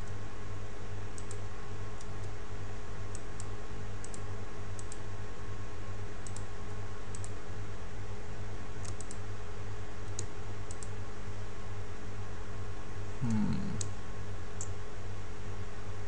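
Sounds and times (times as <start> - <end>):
steady low hum: 0.0 - 16.0
mouse and keyboard clicks: 8.8 - 9.2.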